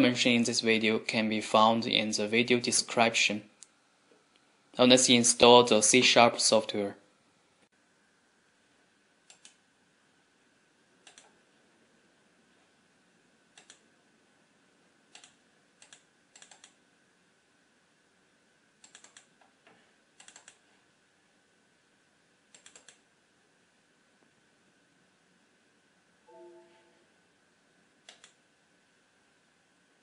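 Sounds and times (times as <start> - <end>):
faint high hum: 0.0 - 30.0
faint computer clicks: 20.2 - 20.6, 28.0 - 28.4.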